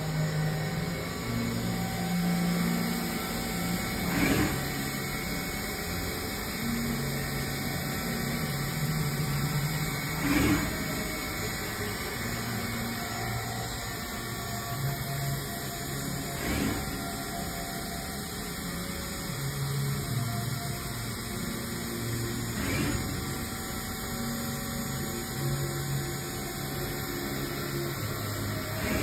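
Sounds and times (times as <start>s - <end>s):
machine hum shifting pitch: 0.0s - 29.0s
machine rush: 0.3s - 19.0s, 20.9s - 25.7s, 27.6s - 29.0s.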